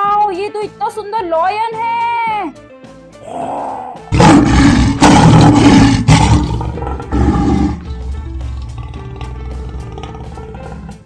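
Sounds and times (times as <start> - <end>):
lion roaring: 3.2 - 11.0.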